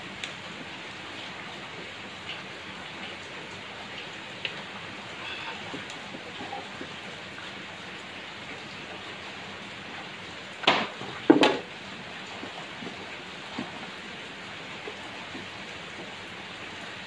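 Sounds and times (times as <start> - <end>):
rain hiss: 0.0 - 17.0.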